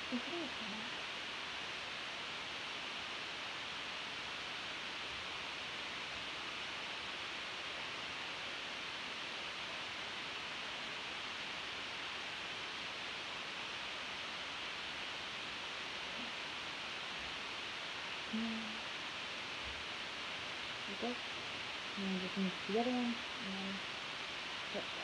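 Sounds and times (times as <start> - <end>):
room noise hiss: 0.0 - 25.0.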